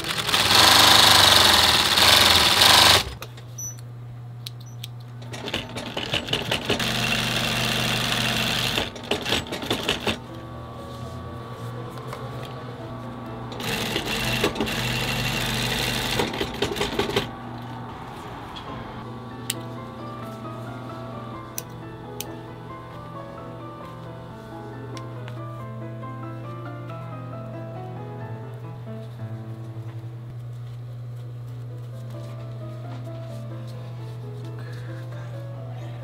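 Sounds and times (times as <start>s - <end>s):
industrial sewing machine sewing leather: 0.0s - 3.3s, 5.2s - 10.2s, 13.5s - 17.3s
motor hum: 0.0s - 26.3s.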